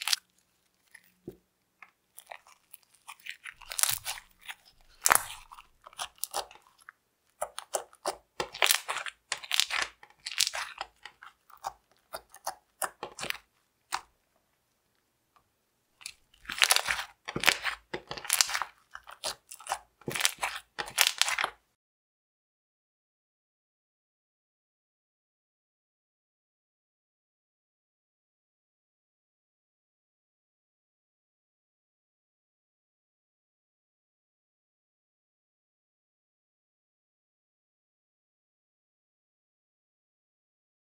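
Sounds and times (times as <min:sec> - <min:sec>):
slime crackling and popping: 0:00.0 - 0:14.2, 0:16.0 - 0:21.6.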